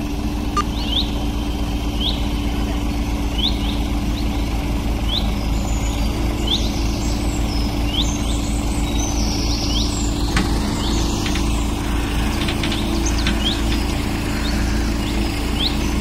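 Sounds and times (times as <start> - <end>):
birds chirping: 0.0 - 16.0
diesel engines running: 0.0 - 16.0
high bird calls: 0.6 - 16.0.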